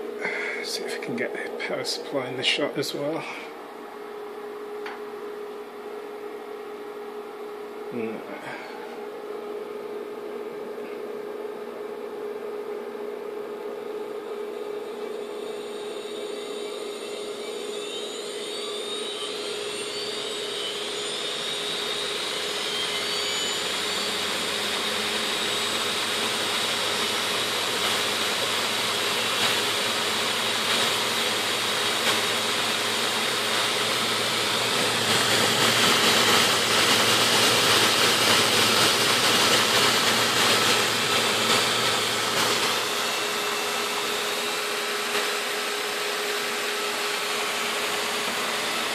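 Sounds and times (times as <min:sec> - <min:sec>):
hard drive motor whine rising: 0:00.0 - 0:48.9
rush of air from spinning platters: 0:31.9 - 0:44.2.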